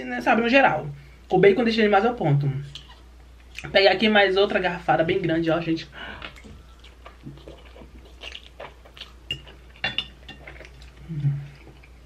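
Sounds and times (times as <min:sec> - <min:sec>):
person chewing: 0:06.2 - 0:12.0.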